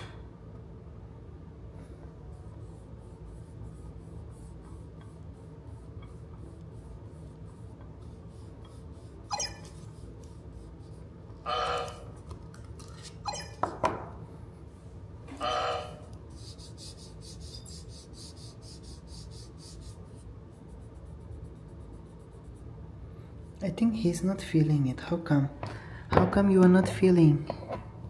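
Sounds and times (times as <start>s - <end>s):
steady low hum: 0.0s - 28.0s
robot electronic chirp: 9.3s - 9.6s.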